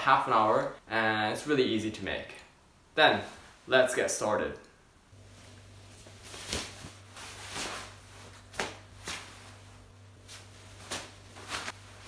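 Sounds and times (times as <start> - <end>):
cloth rustling: 5.2 - 12.0
cord swishing: 5.4 - 12.0.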